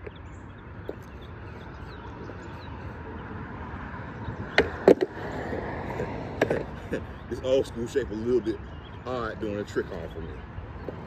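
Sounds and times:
skateboard wheels rolling on concrete: 0.0 - 11.0
skateboard clacking on concrete: 4.5 - 5.3, 6.4 - 6.7.

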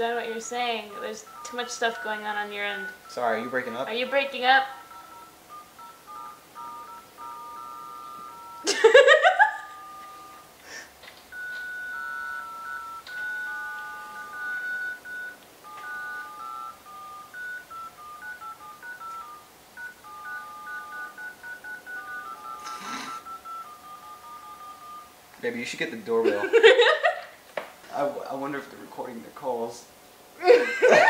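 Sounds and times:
touch-tone dial beeps: 0.5 - 10.5, 11.3 - 25.1.

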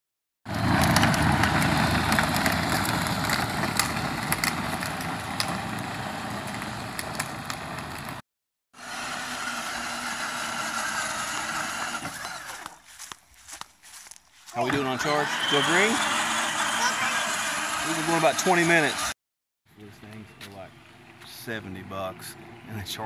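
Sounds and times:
plastic tyres rumbling over pavement: 0.5 - 8.2
electric motor running: 8.8 - 12.8, 14.7 - 19.1.

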